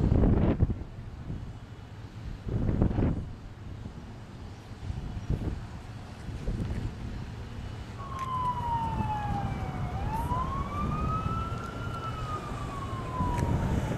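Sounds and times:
emergency siren wailing: 7.9s - 13.9s.

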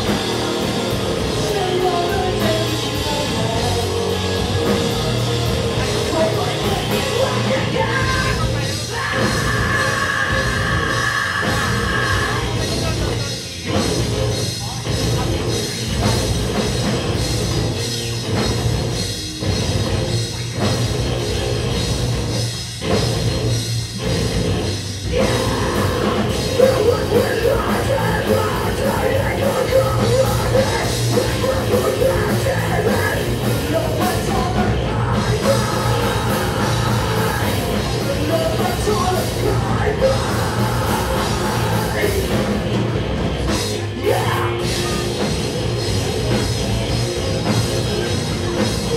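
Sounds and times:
distorted electric guitars: 0.0s - 48.9s
drum kit: 0.0s - 48.9s
vocalist screaming: 7.2s - 12.6s.

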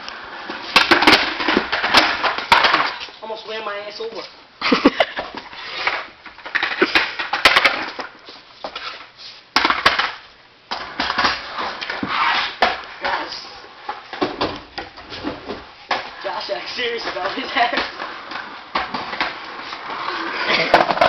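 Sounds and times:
skateboard rolling on concrete: 0.0s - 3.1s, 5.2s - 21.0s
skateboard deck clacking on floor: 0.4s - 3.1s, 13.9s - 21.0s.

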